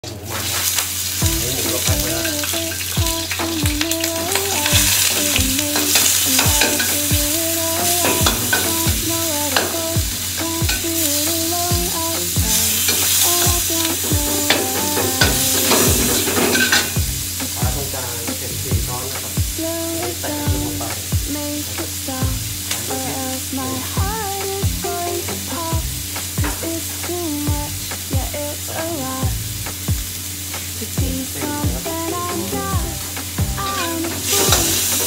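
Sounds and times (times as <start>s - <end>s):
meat sizzling in a wok: 0.3s - 18.4s, 29.3s - 35.0s
background music with steady beat: 1.2s - 35.0s.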